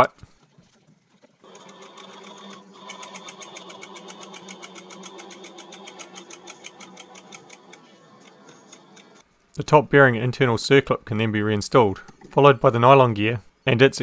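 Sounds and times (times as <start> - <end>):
rapid mechanical clicking: 0.4 - 9.2.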